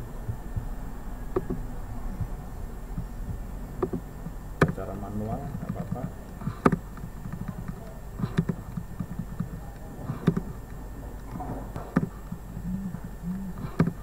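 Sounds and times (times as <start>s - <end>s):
low hum: 0.0s - 14.0s
mouse and keyboard clicks: 1.4s - 1.6s, 3.8s - 4.8s, 5.5s - 14.0s.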